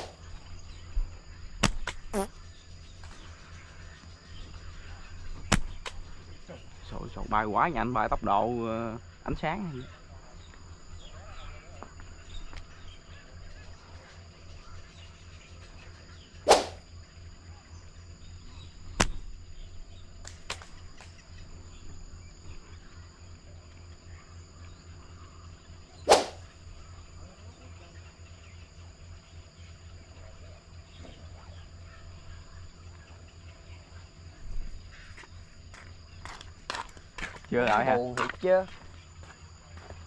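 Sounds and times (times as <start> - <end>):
high insect drone: 0.0 - 40.0
slingshot rubber bands snapping: 1.6 - 2.3, 16.5 - 16.8, 26.1 - 26.4.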